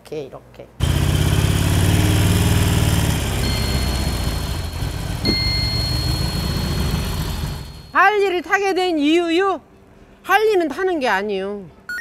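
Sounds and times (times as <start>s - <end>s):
motorcycle engine idling: 0.8s - 7.9s.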